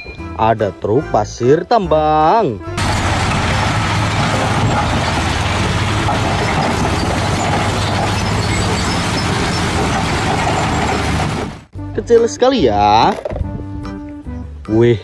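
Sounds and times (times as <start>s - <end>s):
diesel truck engines running: 2.7s - 11.7s
rock and earth pouring out: 2.8s - 11.7s.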